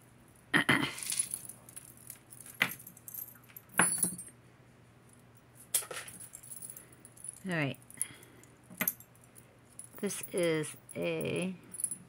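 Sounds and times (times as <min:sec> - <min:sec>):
metal chains and beads jangling: 0:00.9 - 0:04.3, 0:05.9 - 0:12.0.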